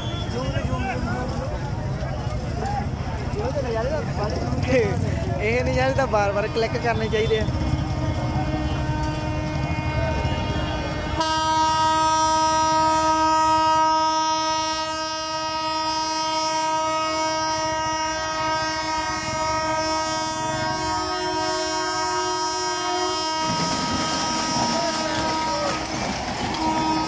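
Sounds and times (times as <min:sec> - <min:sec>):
train horn long blast: 0:06.6 - 0:27.0.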